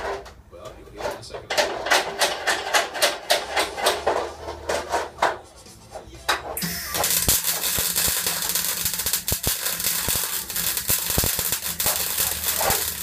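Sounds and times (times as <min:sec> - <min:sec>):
welder arc crackling: 0:06.6 - 0:13.0.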